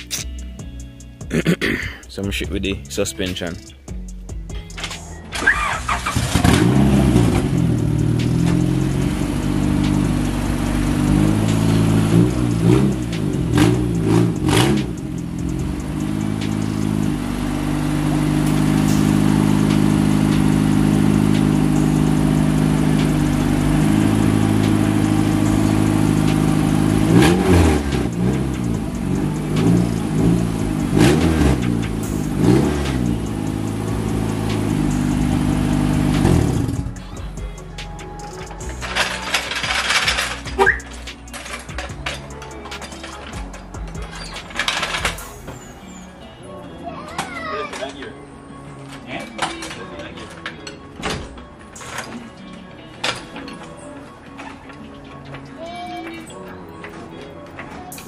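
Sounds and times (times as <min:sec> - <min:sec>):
car engine idling and revving: 0:02.1 - 0:45.4.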